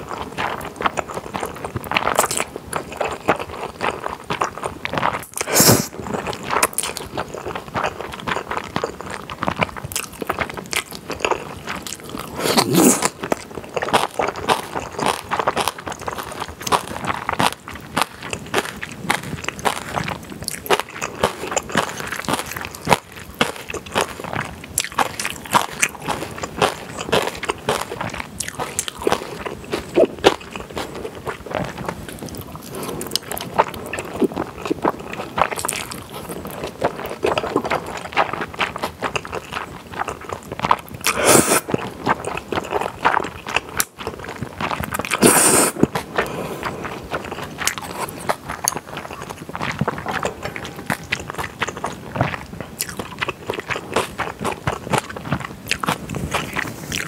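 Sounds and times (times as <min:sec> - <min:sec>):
wet chewing: 0:00.0 - 0:57.0
slurping noodles: 0:05.0 - 0:06.4, 0:11.9 - 0:13.3, 0:41.0 - 0:43.3, 0:44.4 - 0:55.1.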